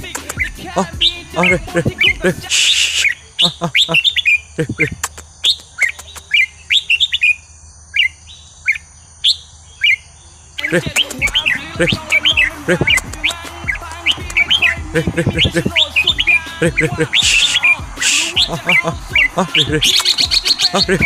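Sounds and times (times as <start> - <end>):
bird singing whistled phrases: 0.0 - 7.4, 8.0 - 10.0, 10.6 - 21.0.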